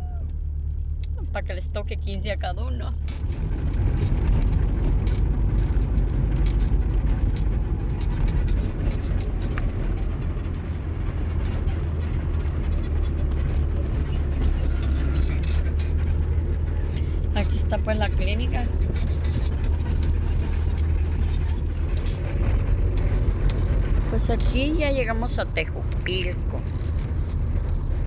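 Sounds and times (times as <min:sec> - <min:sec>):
car engine rumble: 0:00.0 - 0:28.0
road noise with tyre hiss: 0:00.0 - 0:28.0.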